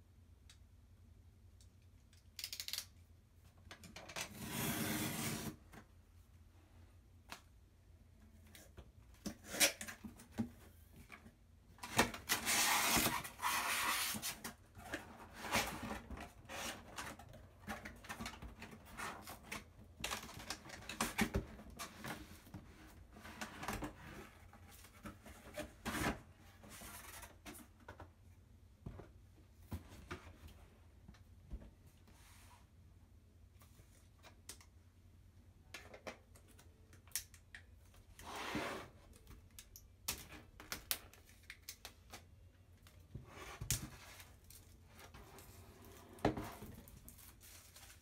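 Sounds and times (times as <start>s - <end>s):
box sliding against cardboard: 4.4s - 5.6s, 38.2s - 39.0s.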